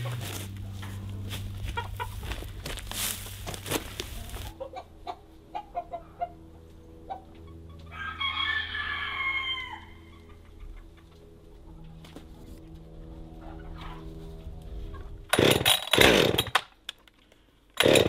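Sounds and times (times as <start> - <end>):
dry straw rustling: 0.0 - 4.7
chickens clucking: 1.6 - 2.4, 4.1 - 7.9, 9.6 - 11.2, 13.4 - 14.2
rooster crowing: 7.9 - 10.1.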